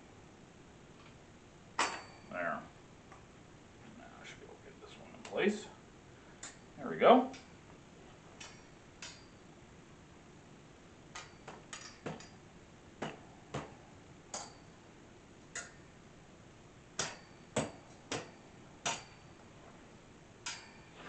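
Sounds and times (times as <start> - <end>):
wire shelves clinking and knocking: 1.8 - 2.4, 8.2 - 9.4, 11.1 - 14.8, 17.0 - 19.8, 20.4 - 21.0.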